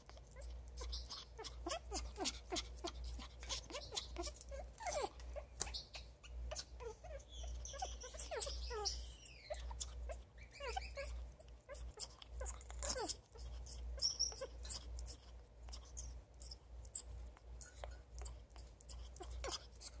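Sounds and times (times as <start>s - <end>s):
parrot squeaking: 0.0s - 20.0s.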